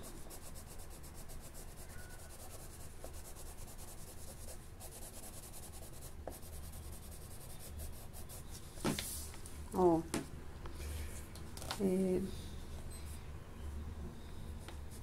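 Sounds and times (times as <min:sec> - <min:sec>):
pencil scratching on paper: 0:00.0 - 0:08.5.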